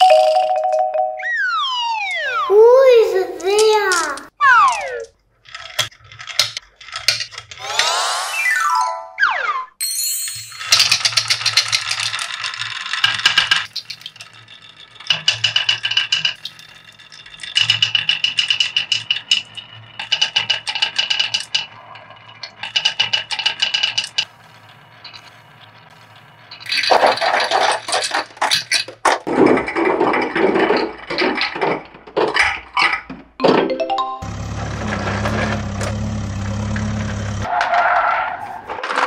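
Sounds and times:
marbles rattling into plastic bottle: 0:03.4 - 0:06.4, 0:10.6 - 0:21.7
marbles rolling down wooden track: 0:03.4 - 0:07.6, 0:10.5 - 0:32.6.

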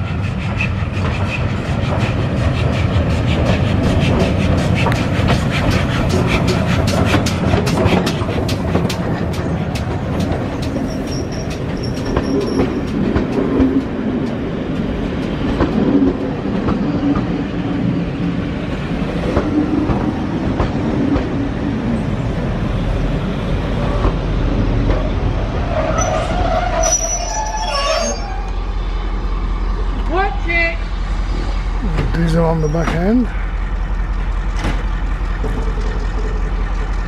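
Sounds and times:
train wheels rumbling on rails: 0:00.0 - 0:37.0
metallic wheel squeal: 0:10.8 - 0:12.9, 0:25.7 - 0:28.7.

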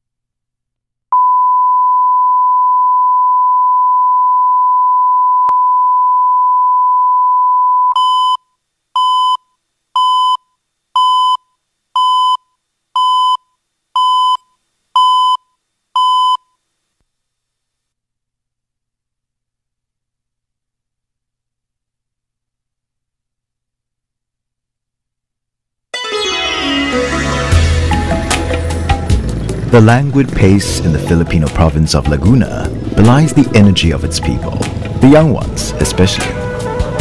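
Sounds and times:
short beeps: 0:01.2 - 0:16.5
steady electronic test tone beep: 0:01.2 - 0:16.5.

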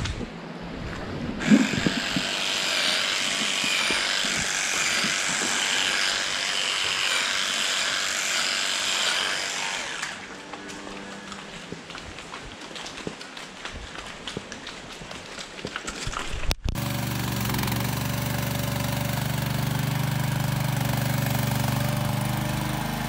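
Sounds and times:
electric hair clippers buzzing: 0:01.4 - 0:10.3.

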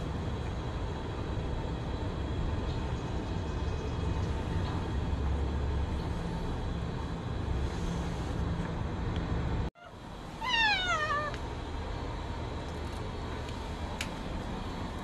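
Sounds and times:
steady low rumble: 0:00.0 - 0:15.0
cat meowing: 0:09.8 - 0:11.4.

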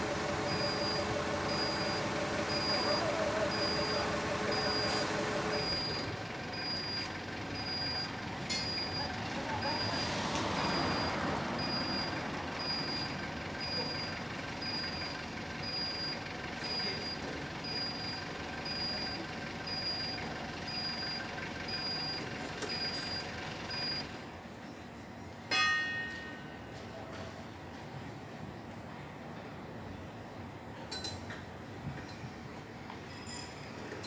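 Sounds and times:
rapid warning beeper: 0:00.0 - 0:08.1, 0:08.7 - 0:24.0
forklift engine running: 0:00.0 - 0:25.2
sharp metallic clang: 0:25.5 - 0:26.7.

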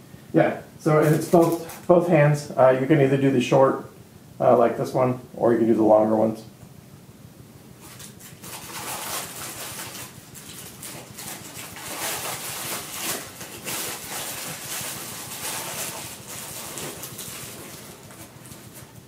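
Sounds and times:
packaging rustling and crinkling: 0:01.0 - 0:01.9, 0:07.8 - 0:19.0.

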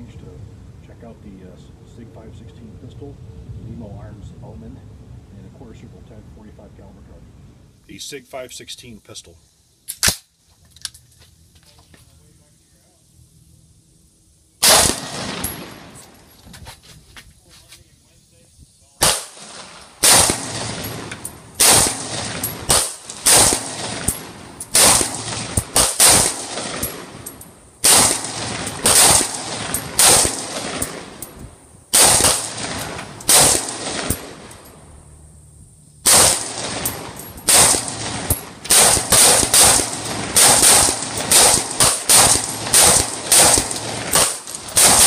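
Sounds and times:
pistol gunshots: 0:14.6 - 0:16.1, 0:19.0 - 0:31.3, 0:31.9 - 0:34.7, 0:36.0 - 0:45.0.

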